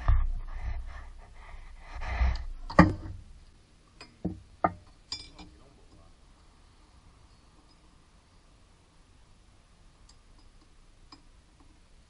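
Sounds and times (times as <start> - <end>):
breathing: 0.0 - 3.2.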